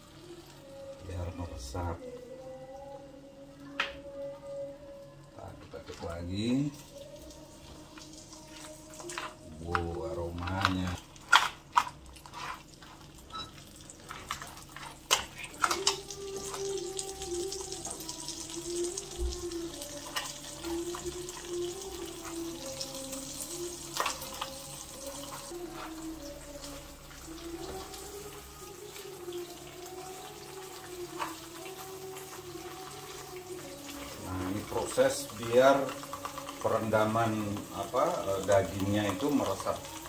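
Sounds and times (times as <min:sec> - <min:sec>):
faint wavering hum: 0:00.0 - 0:11.2
curry bubbling and sizzling: 0:05.6 - 0:40.0.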